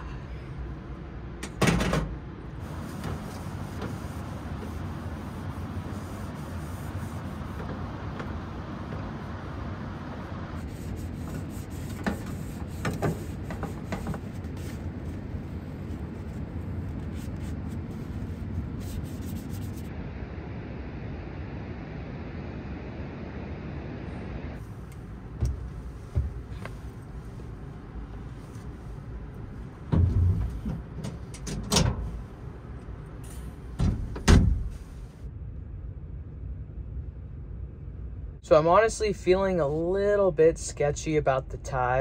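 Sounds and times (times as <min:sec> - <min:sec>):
wiping and rubbing: 0:02.6 - 0:09.3, 0:10.0 - 0:19.9, 0:25.5 - 0:30.9.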